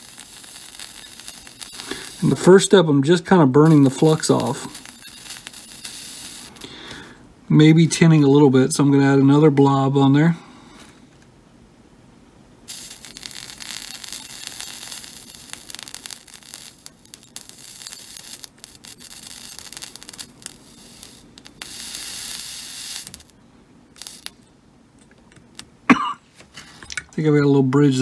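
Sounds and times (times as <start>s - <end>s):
soldering flux sizzling: 0.0s - 7.2s, 12.6s - 24.5s, 25.4s - 25.8s.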